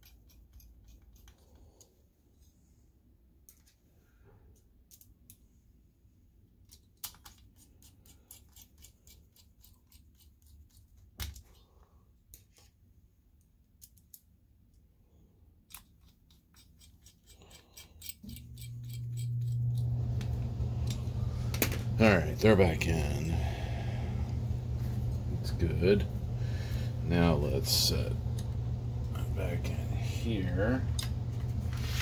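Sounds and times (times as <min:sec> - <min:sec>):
low steady hum: 0:00.0 - 0:32.0
screwdriver turning metal screws: 0:15.7 - 0:19.6.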